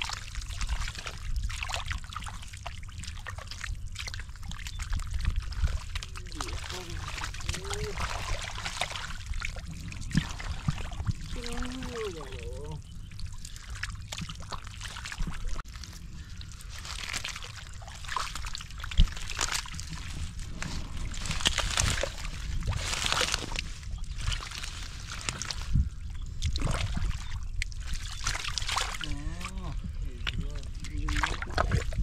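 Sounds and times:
hands squelching through mud: 0.0s - 32.0s
water splashes: 0.0s - 32.0s.

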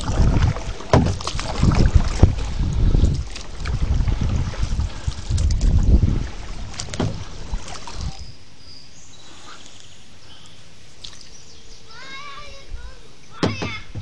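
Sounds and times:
paddle knocking and splashing: 0.0s - 8.2s, 13.4s - 14.0s
wind buffeting microphone: 0.0s - 8.4s
faint water sounds: 0.0s - 14.0s.

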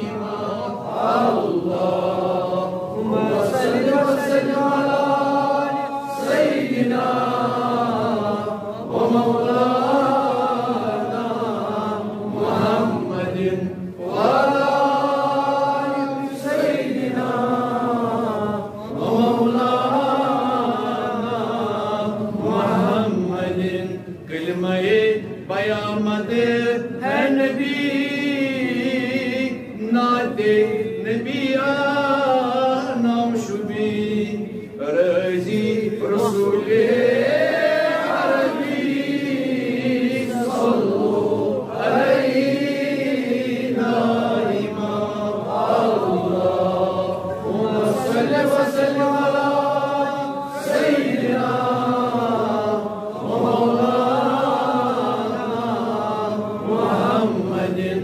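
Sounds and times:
man chanting: 1.6s - 37.1s.

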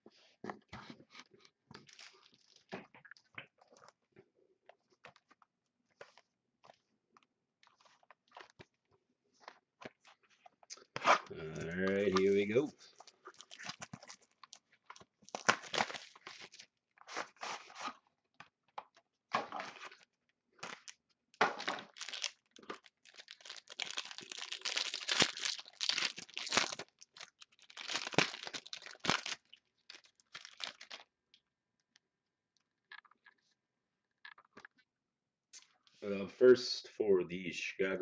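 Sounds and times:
wrapper ripping and crinkling: 1.8s - 2.7s, 10.8s - 18.0s, 19.6s - 31.1s.

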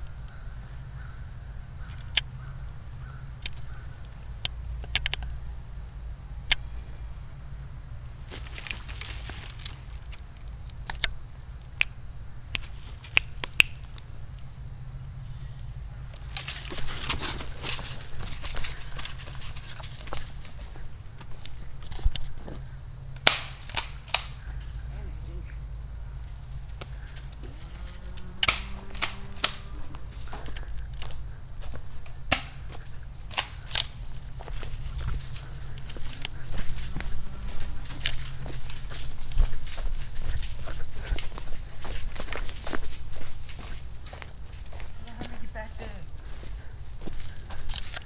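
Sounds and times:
dry twigs snapping underfoot: 8.2s - 14.1s, 16.1s - 22.6s, 23.2s - 24.8s, 26.2s - 45.4s, 46.2s - 48.0s.

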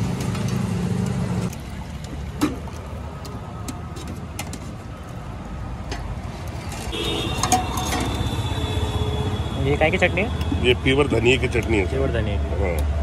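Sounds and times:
street traffic hum: 0.0s - 13.0s
steel ladle clinking on pots: 7.2s - 8.4s.

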